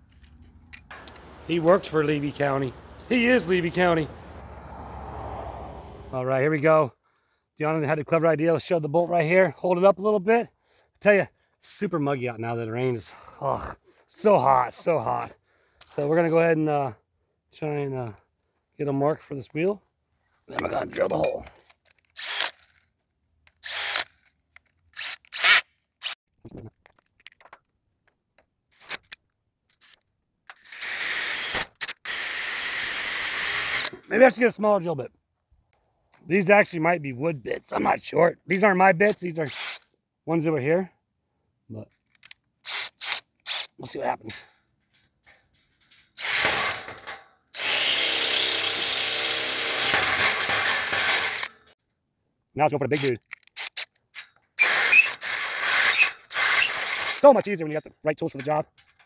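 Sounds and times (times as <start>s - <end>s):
cordless drill drilling metal: 0.9s - 3.9s, 22.2s - 22.8s, 23.6s - 24.2s, 24.9s - 26.2s, 30.5s - 34.0s, 39.5s - 39.8s, 42.6s - 43.7s, 46.2s - 51.7s, 54.6s - 57.3s.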